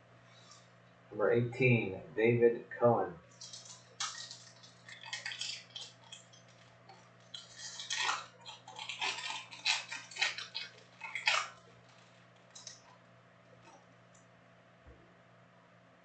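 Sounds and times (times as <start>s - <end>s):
foil wrapper tearing and crinkling: 3.4s - 12.9s.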